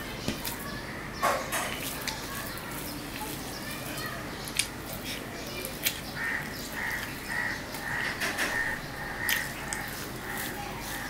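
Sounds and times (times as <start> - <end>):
fingers mixing rice on steel plate: 1.6 - 11.0
bird calling: 5.9 - 11.0.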